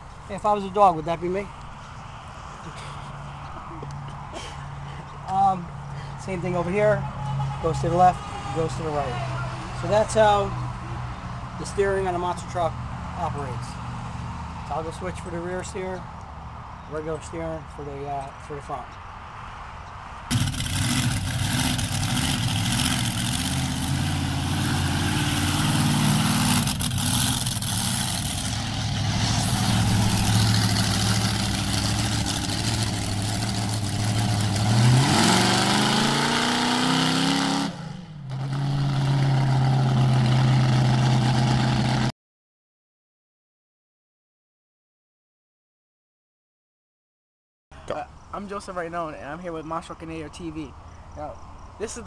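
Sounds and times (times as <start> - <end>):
monster truck engine revving: 20.3 - 42.1.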